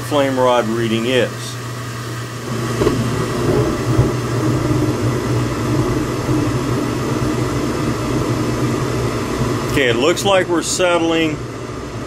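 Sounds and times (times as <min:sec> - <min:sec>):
furnace motor hum: 0:00.0 - 0:12.0
gas flames rumbling: 0:00.0 - 0:12.0.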